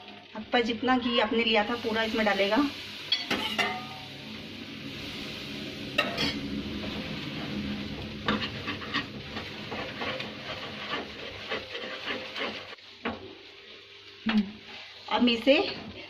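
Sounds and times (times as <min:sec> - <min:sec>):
ghee sizzling in a pan: 0:00.0 - 0:16.0
utensil scraping a pan: 0:08.2 - 0:12.8.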